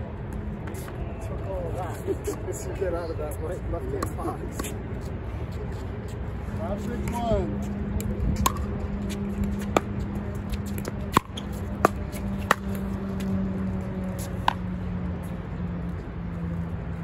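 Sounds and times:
low hum: 4.0 - 17.0
wind rumble: 4.8 - 17.0.

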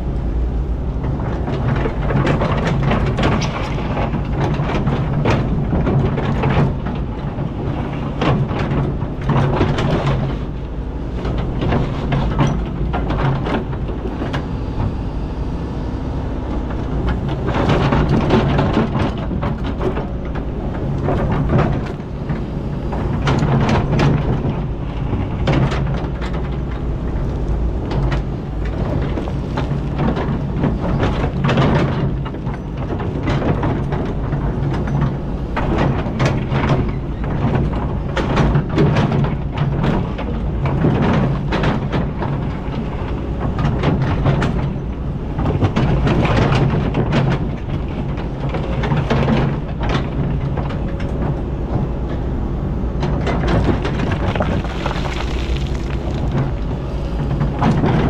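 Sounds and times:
excavator diesel engine: 0.0 - 58.0
bucket clanking on rocks: 53.3 - 58.0.

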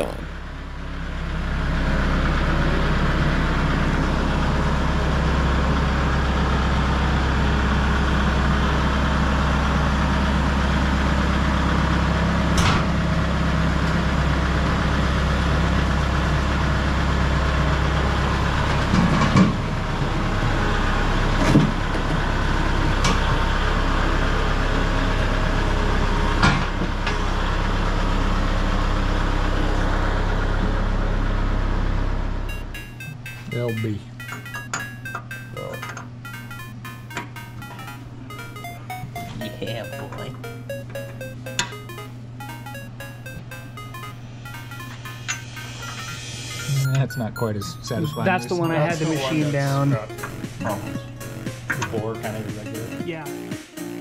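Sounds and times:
engine idling with low hum: 0.0 - 32.8.

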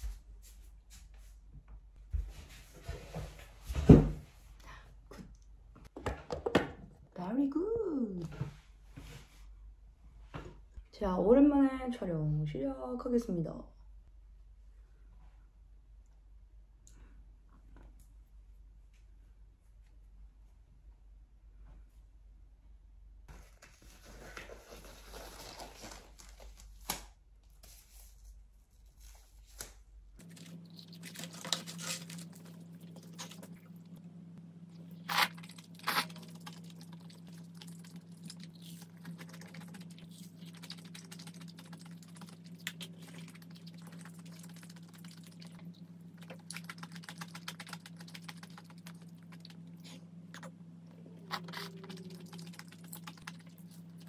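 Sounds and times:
steady low hum: 27.3 - 54.0
crunching fried chicken: 30.2 - 33.9, 34.8 - 50.5, 51.3 - 54.0.

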